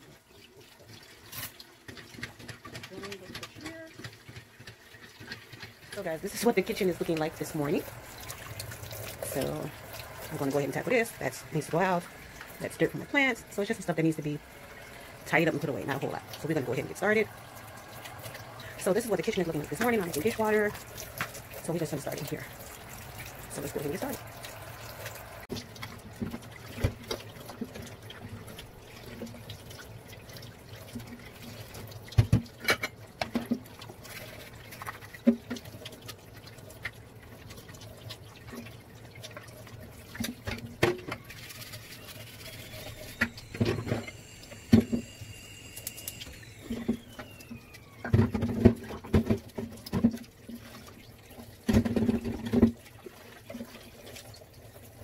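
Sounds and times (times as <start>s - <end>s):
water splashing in a sink: 0.0s - 55.0s
dishes clattering at a sink: 32.2s - 33.6s.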